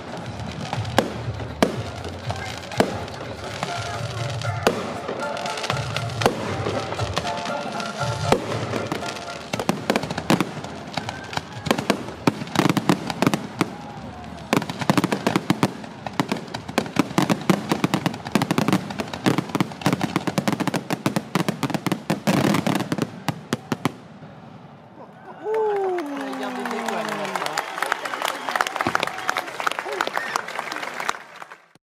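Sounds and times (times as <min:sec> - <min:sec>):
fireworks bangs and crackling: 0:00.0 - 0:24.8, 0:28.7 - 0:29.4.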